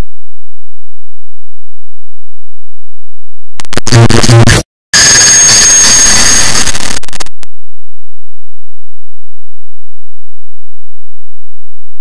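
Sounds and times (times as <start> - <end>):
harsh clipped digital noise: 3.6 - 7.5.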